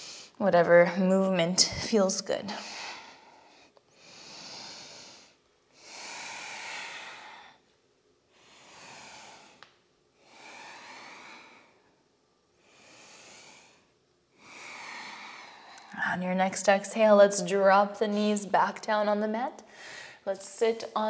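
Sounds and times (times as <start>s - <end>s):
woman breathing deeply: 0.0s - 0.4s, 2.5s - 7.7s, 8.3s - 16.0s, 19.6s - 20.3s.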